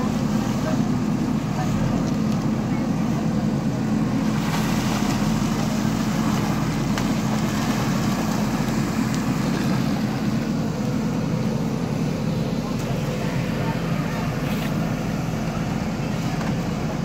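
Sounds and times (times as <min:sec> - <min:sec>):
backhoe digging mud: 0:00.0 - 0:17.0
diesel engine running: 0:00.0 - 0:17.0.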